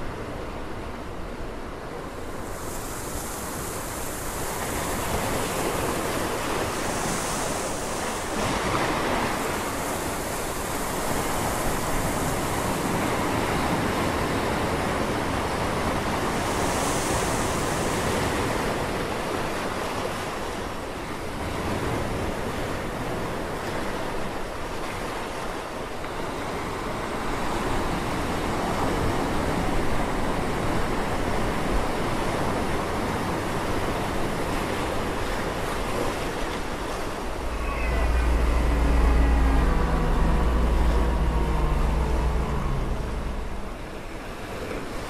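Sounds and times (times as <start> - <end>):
continuous rushing noise: 37.2 - 44.6.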